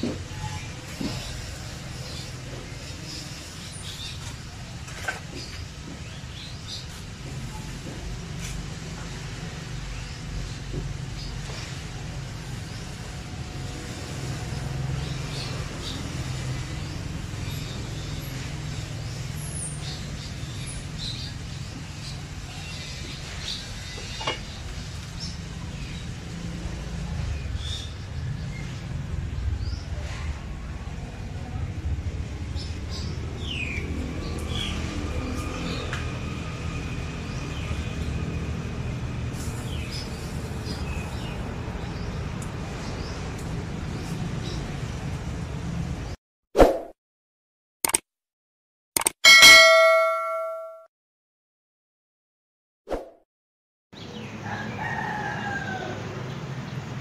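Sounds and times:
distant road traffic rumble: 0:00.0 - 0:46.2, 0:54.0 - 0:57.0
sharp click: 0:47.8 - 0:48.1, 0:49.0 - 0:49.2.

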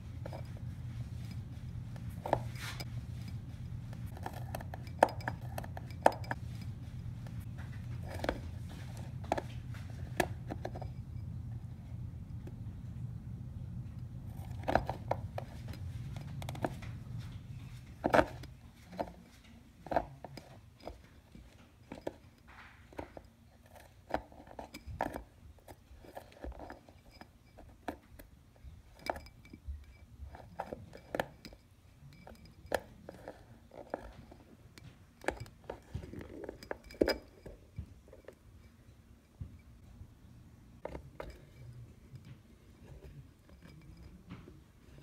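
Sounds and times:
claws and shell knocking on hard surfaces: 0:00.2 - 0:11.0.

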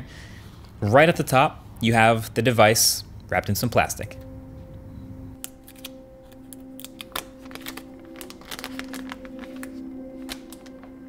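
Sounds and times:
soft background music: 0:00.8 - 0:11.0
plastic wrap crinkling: 0:05.4 - 0:11.0.

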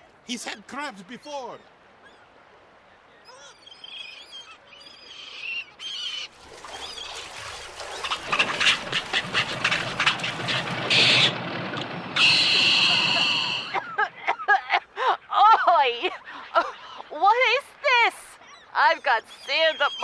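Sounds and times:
splashing water: 0:06.2 - 0:14.3
birds honking and quacking: 0:07.0 - 0:14.1.

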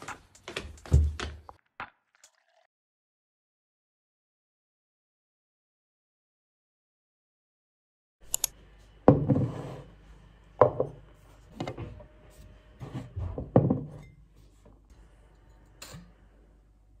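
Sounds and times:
glass and bottle knocking on counter: 0:13.4 - 0:14.1.

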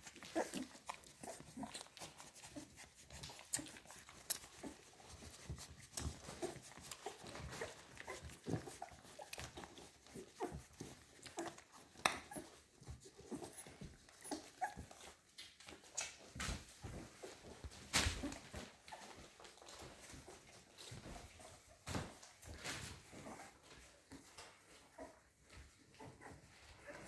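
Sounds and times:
puppies squeaking and whimpering: 0:00.0 - 0:16.2
puppies suckling clicks: 0:00.0 - 0:27.0.

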